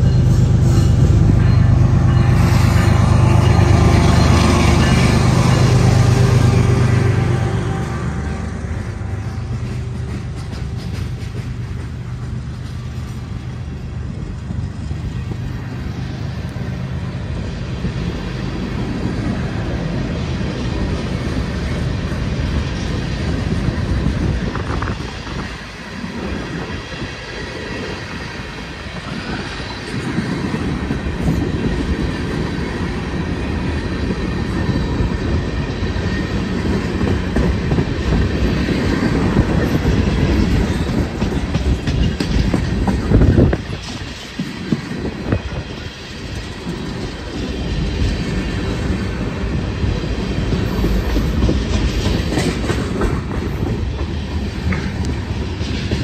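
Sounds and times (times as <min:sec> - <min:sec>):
freight train rolling past: 0:00.0 - 0:56.0.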